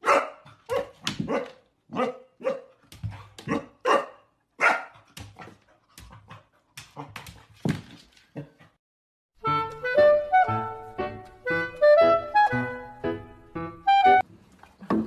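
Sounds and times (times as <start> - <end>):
puppy barking: 0.0 - 2.8, 3.4 - 5.1.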